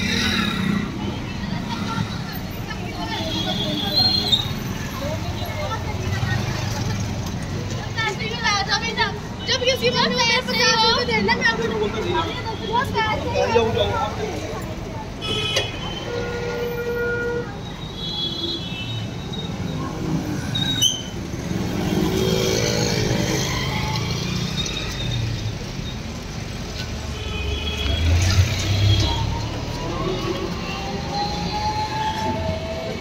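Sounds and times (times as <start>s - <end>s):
street traffic: 0.0s - 33.0s
vehicle horns: 15.2s - 19.2s, 27.1s - 29.3s.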